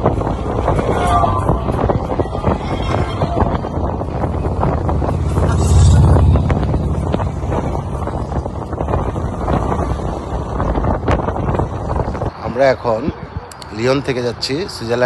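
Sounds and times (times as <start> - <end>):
wind buffeting on microphone: 0.0 - 15.0
motorcycle engine running: 3.4 - 12.0.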